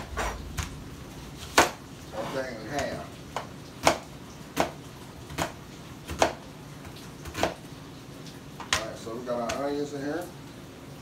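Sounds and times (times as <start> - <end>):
knife chopping on cutting board: 0.0 - 0.7, 1.4 - 1.8, 2.8 - 7.6.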